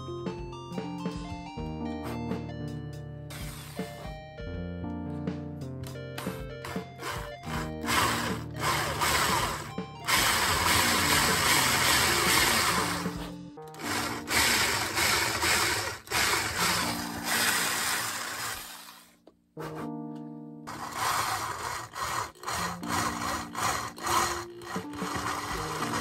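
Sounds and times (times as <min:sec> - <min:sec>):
cordless drill boring into wood: 0:03.3 - 0:04.1, 0:06.2 - 0:19.1, 0:20.7 - 0:26.0.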